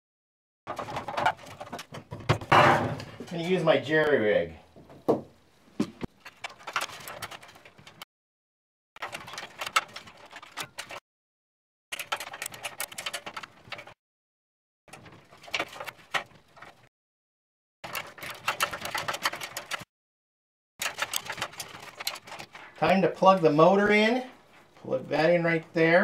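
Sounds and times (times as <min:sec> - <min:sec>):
small metal clicks and rattles: 0:06.2 - 0:08.0, 0:09.0 - 0:11.0, 0:11.9 - 0:14.0, 0:17.8 - 0:19.9, 0:20.8 - 0:23.0.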